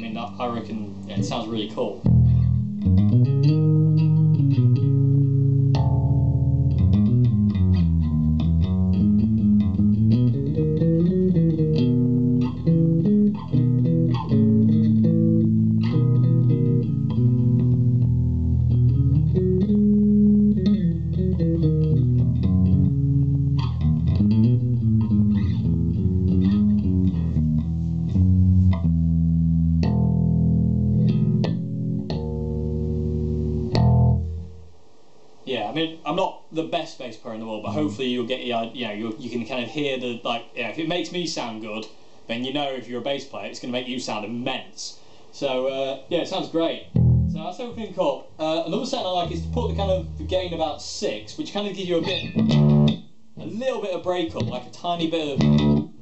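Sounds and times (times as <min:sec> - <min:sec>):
electric bass line: 0:02.0 - 0:34.7, 0:46.9 - 0:47.8, 0:49.0 - 0:50.8, 0:52.0 - 0:53.5, 0:55.4 - 0:56.0.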